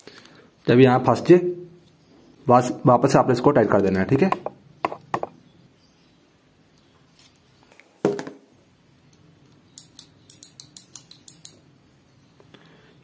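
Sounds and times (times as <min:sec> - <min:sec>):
spanner clicking and knocking on metal: 0:09.8 - 0:11.6.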